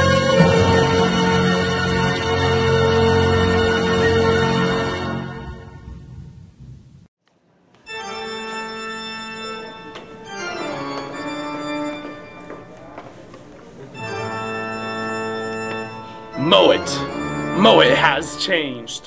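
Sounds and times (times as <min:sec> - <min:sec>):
organ chords: 0:00.0 - 0:06.0, 0:07.8 - 0:19.0.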